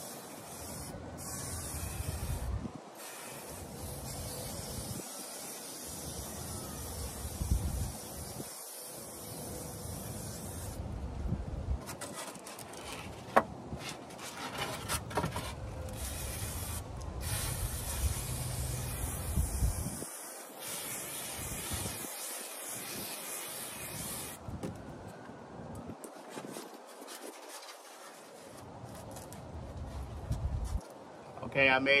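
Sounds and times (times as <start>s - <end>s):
aerosol spray hissing: 0.0s - 10.8s, 16.0s - 24.4s.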